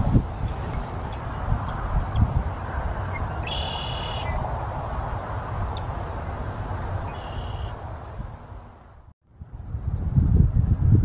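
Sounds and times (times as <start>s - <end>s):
wind noise on microphone: 0.0s - 11.0s
blackbird singing: 3.1s - 4.4s, 7.1s - 7.8s.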